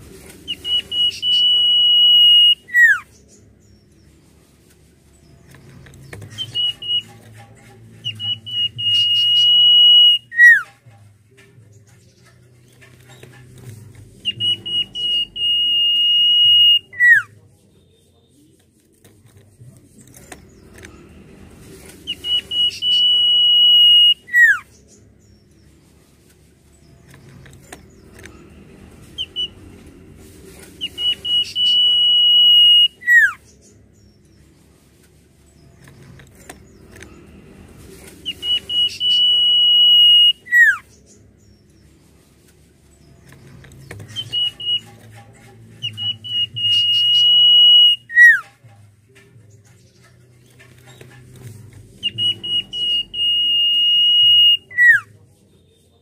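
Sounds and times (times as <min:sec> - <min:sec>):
bird whistling song: 0:00.4 - 0:03.2, 0:06.1 - 0:07.3, 0:08.0 - 0:10.7, 0:14.2 - 0:17.3, 0:22.1 - 0:24.8, 0:29.2 - 0:29.6, 0:30.8 - 0:34.1, 0:38.2 - 0:41.1, 0:44.0 - 0:45.2, 0:45.8 - 0:48.5, 0:52.0 - 0:55.1.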